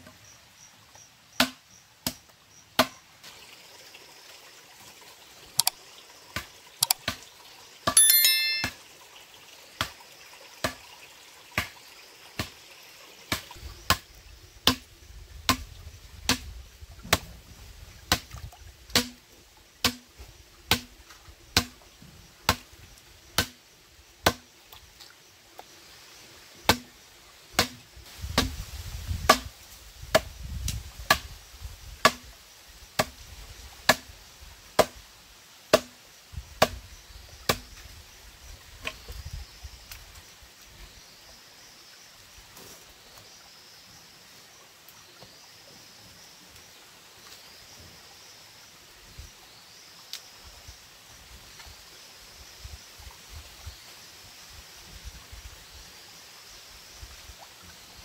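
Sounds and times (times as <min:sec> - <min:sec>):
stream trickling: 0:03.0 - 0:21.9, 0:37.0 - 0:58.0
short high-pitched ring: 0:08.0 - 0:08.8
blade chopping on wood: 0:35.7 - 0:35.9.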